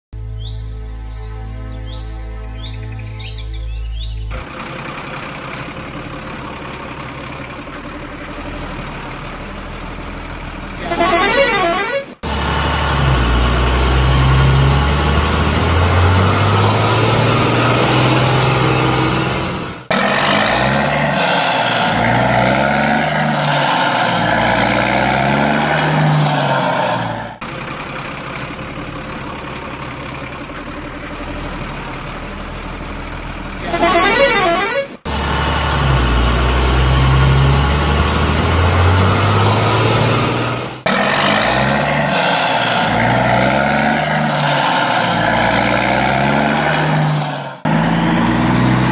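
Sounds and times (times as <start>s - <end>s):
truck engine revving: 4.2s - 48.9s
truck horn: 10.8s - 27.4s, 33.6s - 47.4s
whooshing effects: 20.1s - 27.4s, 41.2s - 47.7s.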